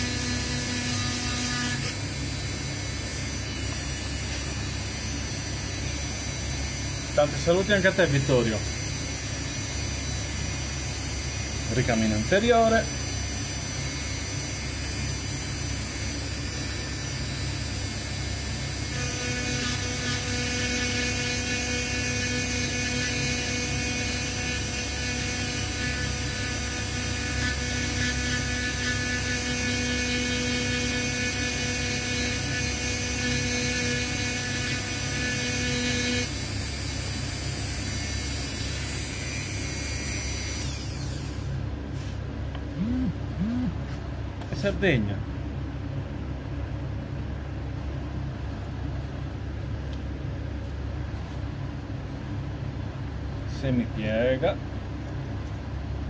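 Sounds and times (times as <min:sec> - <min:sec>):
pitched whine: 0:00.0 - 0:41.6, 0:42.6 - 0:45.2
power tool motor running: 0:00.0 - 0:41.6, 0:42.8 - 0:43.8.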